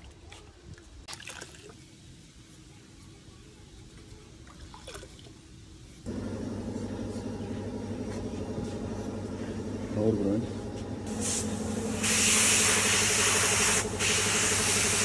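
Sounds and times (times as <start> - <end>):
water sloshing and scrubbing: 0.0 - 1.9, 4.4 - 5.5
machine hum: 6.0 - 15.0.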